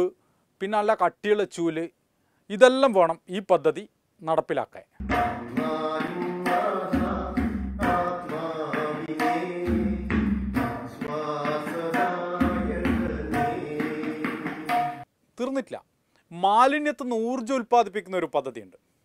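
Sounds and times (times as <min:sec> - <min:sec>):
deep bass tones: 0:05.0 - 0:05.6
person singing: 0:05.0 - 0:15.0
tabla drumming: 0:05.0 - 0:15.1.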